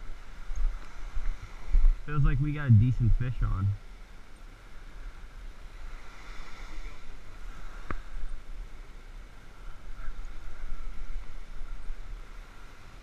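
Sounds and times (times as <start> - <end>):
wind rushing over microphone: 0.0 - 3.8
small waves lapping at shore: 0.0 - 13.0.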